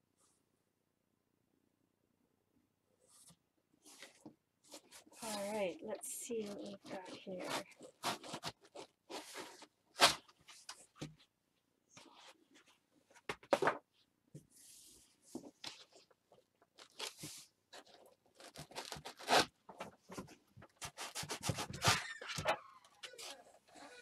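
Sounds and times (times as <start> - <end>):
foam scraping against cardboard: 6.4 - 10.2.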